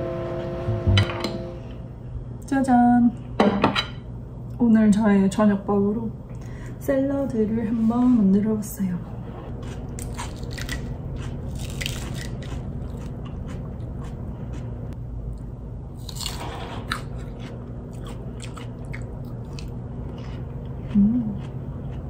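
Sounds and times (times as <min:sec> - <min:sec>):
steady low hum: 0:00.0 - 0:22.0
crunching and chewing vegetables: 0:09.5 - 0:15.4, 0:16.0 - 0:22.0.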